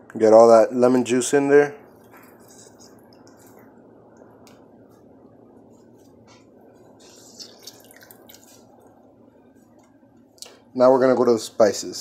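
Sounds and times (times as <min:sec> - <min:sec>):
juice dripping into water: 0:07.1 - 0:09.2.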